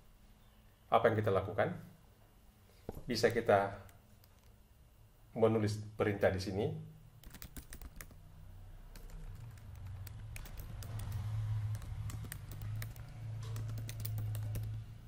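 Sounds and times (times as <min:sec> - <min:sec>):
steady low hum: 0:00.0 - 0:15.0
keyboard typing clicks: 0:07.2 - 0:08.2, 0:08.9 - 0:14.9.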